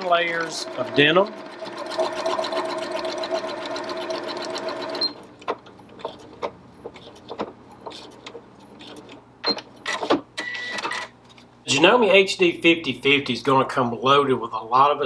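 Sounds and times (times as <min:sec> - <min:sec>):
sewing machine stitching: 0:00.0 - 0:09.2.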